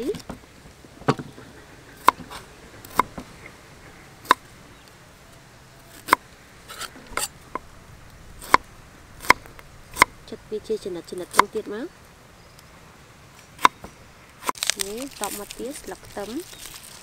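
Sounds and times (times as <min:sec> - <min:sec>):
scraping and rustling: 0:13.3 - 0:17.0.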